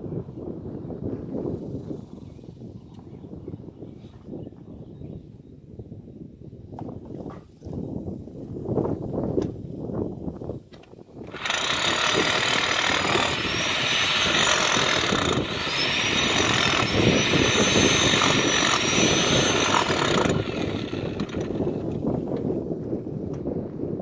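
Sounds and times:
power tool motor whining: 11.3s - 22.0s.

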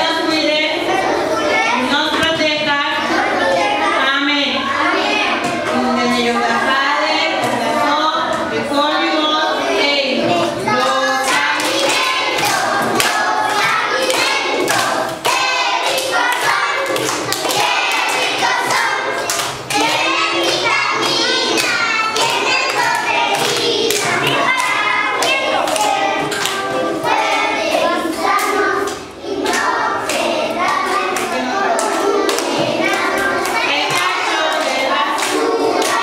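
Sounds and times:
children singing: 0.0s - 36.0s
hands clapping in rhythm: 10.7s - 36.0s.

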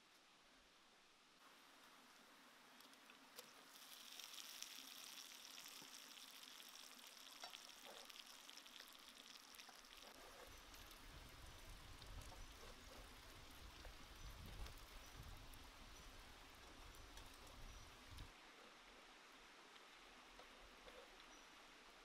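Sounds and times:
chicken sizzling in hot oil: 3.4s - 16.0s.

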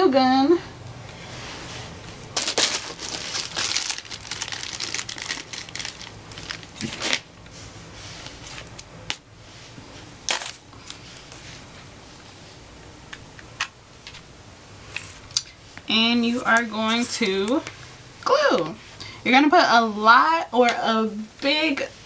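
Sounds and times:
rustling and crinkling craft supplies: 1.2s - 11.9s.

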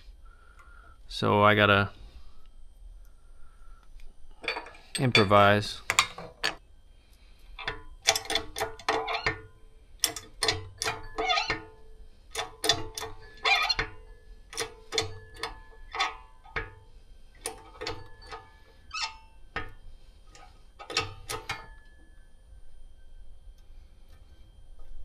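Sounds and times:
metallic clinks: 10.0s - 22.3s.

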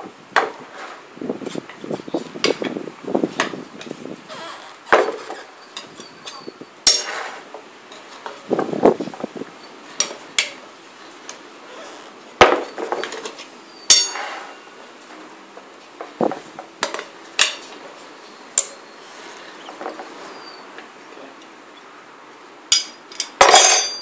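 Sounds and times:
tyre levers knocking and clinking: 13.9s - 14.5s, 22.7s - 24.0s.

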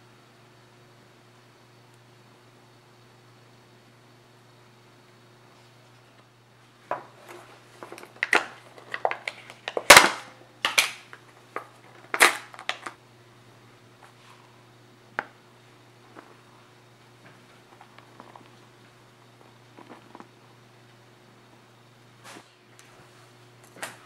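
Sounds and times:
tin lid clicking and crackling: 8.0s - 11.2s.

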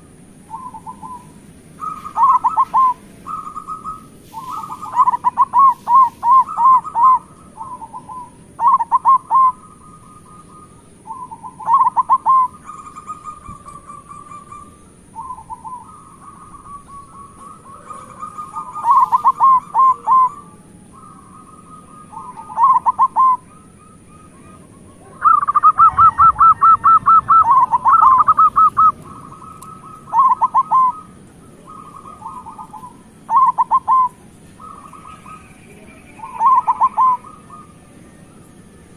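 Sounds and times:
doves cooing: 0.0s - 38.9s.

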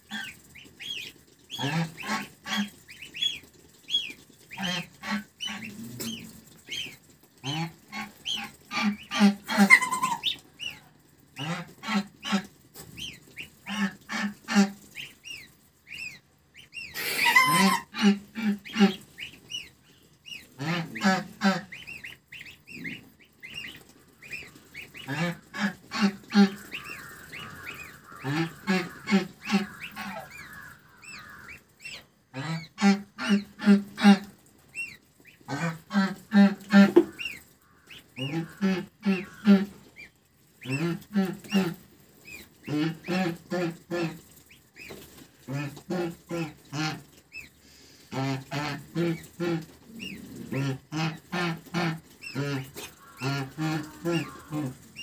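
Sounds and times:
goslings peeping: 0.0s - 55.0s
goose honking: 0.1s - 3.0s, 4.5s - 10.8s, 16.7s - 19.3s, 20.3s - 23.0s, 24.3s - 34.3s, 35.4s - 39.8s, 48.0s - 55.0s.

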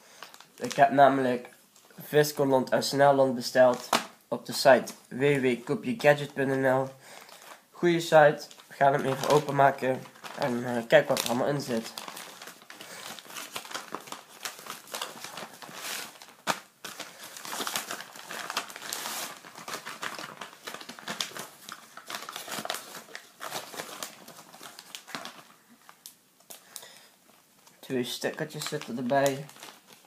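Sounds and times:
plastic bag crinkling: 0.1s - 1.2s, 7.1s - 7.6s, 8.2s - 30.0s.

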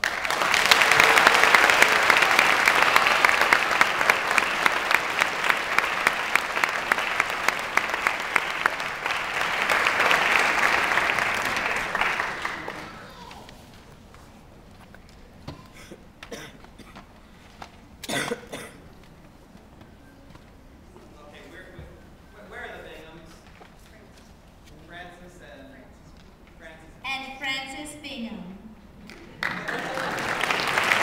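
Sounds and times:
audience applauding: 0.0s - 13.6s, 29.0s - 31.0s
close hand claps: 0.0s - 13.6s, 29.0s - 31.0s.

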